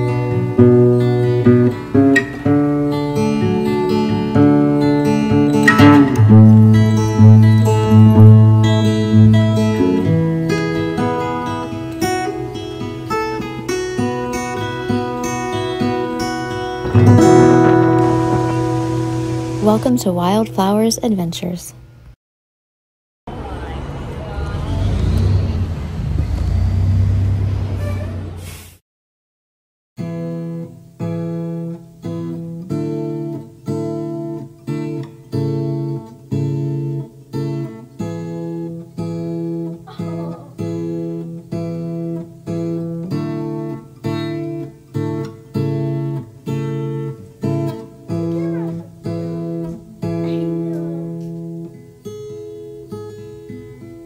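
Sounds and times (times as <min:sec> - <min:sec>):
acoustic guitar strumming chords: 0:00.0 - 0:21.8, 0:30.0 - 0:54.0.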